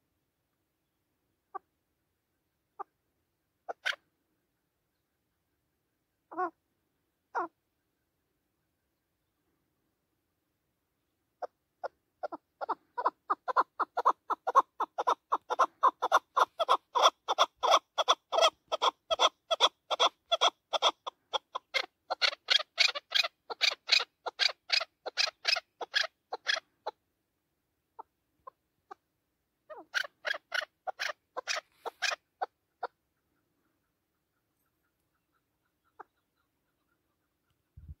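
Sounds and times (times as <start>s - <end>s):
partridge clucking calls: 3.7s - 4.0s, 11.4s - 27.0s, 29.7s - 38.0s.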